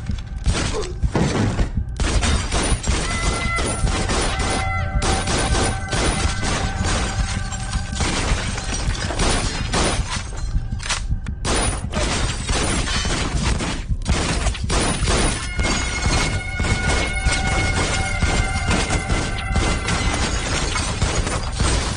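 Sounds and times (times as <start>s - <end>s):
film music score: 0.0s - 21.9s
gunshots: 0.4s - 21.9s
bullets shattering glass and walls: 2.0s - 21.9s.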